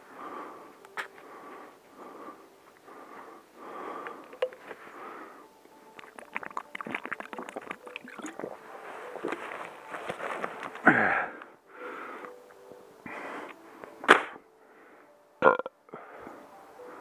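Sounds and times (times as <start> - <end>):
heavy breathing: 0.0 - 5.6, 9.8 - 12.4, 13.0 - 14.0, 14.6 - 15.2, 15.9 - 17.0
footsteps crunching in snow: 8.6 - 10.9.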